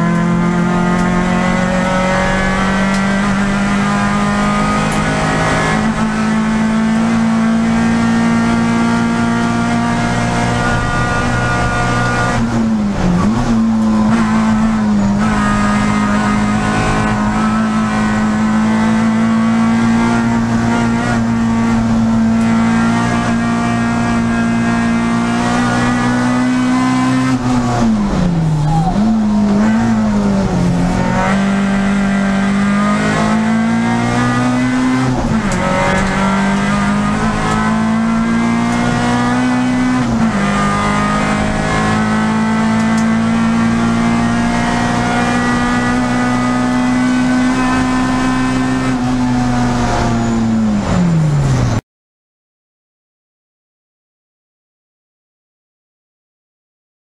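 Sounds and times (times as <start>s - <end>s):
race car engine at high revs: 0.0s - 51.8s.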